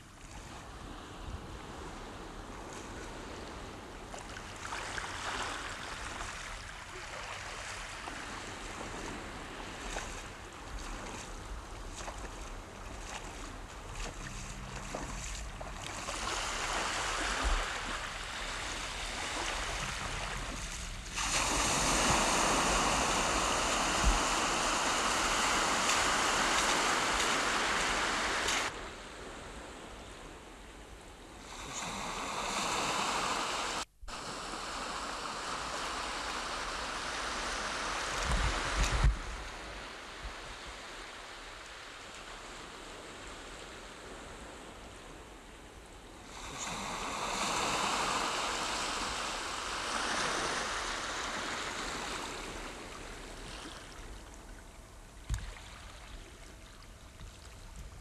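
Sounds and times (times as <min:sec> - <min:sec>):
sea surf on shore: 0:00.0 - 0:58.0
loud rushing water: 0:13.9 - 0:28.8.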